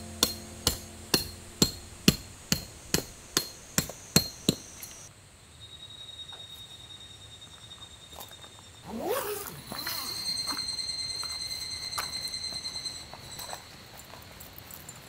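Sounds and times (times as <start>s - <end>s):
hammer striking tent peg: 0.0s - 5.1s.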